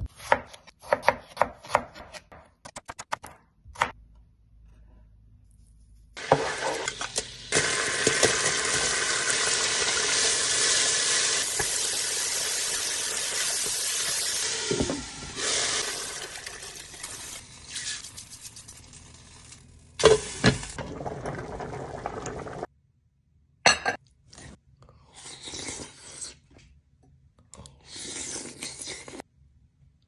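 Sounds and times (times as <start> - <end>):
food sizzling in a pot: 6.2 - 20.9
person slurping and chewing: 25.1 - 26.4, 27.8 - 29.2.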